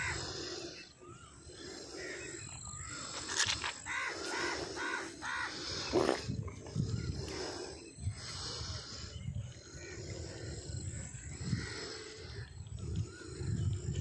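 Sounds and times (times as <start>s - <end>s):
microphone handling noise: 5.9s - 7.0s.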